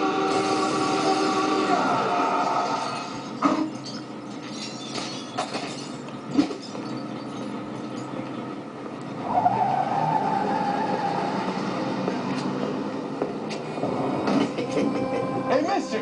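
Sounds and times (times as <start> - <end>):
car driving: 0.0 - 16.0
tyre squeal: 9.2 - 11.5.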